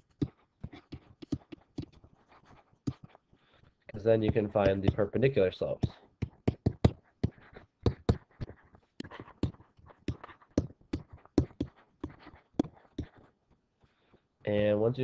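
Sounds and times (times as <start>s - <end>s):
stylus scratching: 0.0s - 13.4s
stylus tapping clicks: 0.1s - 2.0s, 4.2s - 5.2s.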